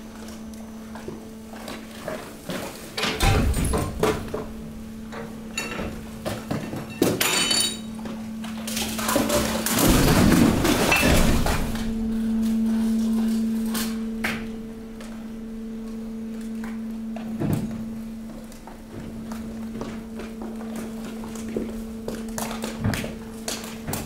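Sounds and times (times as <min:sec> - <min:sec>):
hydraulic press humming: 0:00.0 - 0:21.6
high machine tone: 0:03.2 - 0:20.6
glass and plastic crunching: 0:05.6 - 0:14.0.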